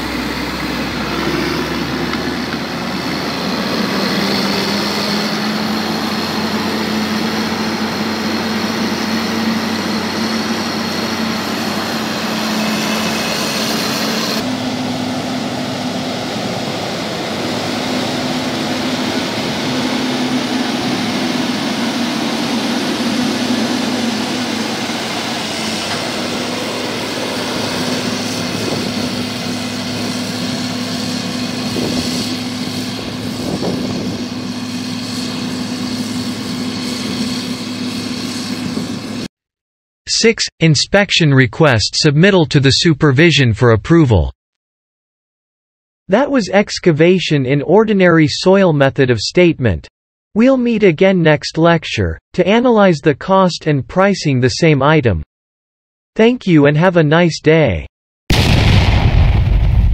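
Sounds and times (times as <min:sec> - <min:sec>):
grader diesel engine drone: 0:00.0 - 0:39.3.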